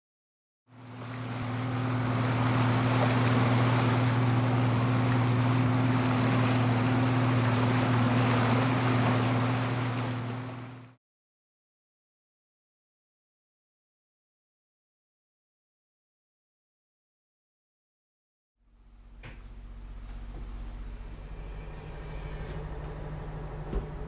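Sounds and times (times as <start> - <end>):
boat engine droning: 0.7 - 11.0, 18.6 - 24.0
wind and water hiss: 0.8 - 10.8.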